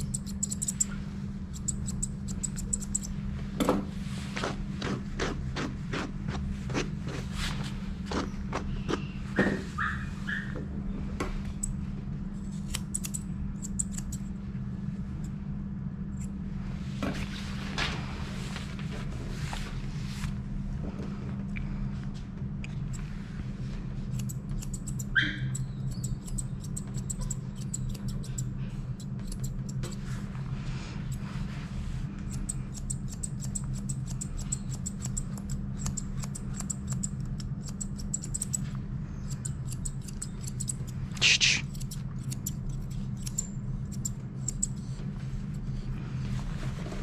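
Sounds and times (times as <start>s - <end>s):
grooming shears clicking: 0.0s - 0.9s, 1.5s - 3.2s, 12.6s - 14.3s, 24.1s - 30.1s, 32.2s - 44.8s
steady low hum: 0.0s - 47.0s.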